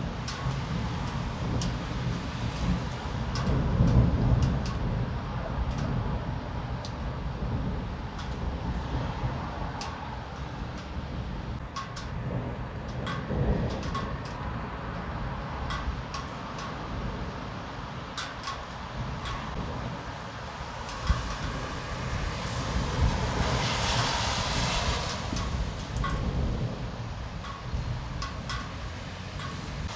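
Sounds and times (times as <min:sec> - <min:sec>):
raindrops ticking: 0:00.0 - 0:29.9
distant thunder rumbling: 0:12.0 - 0:16.1, 0:19.0 - 0:20.2, 0:21.0 - 0:28.7.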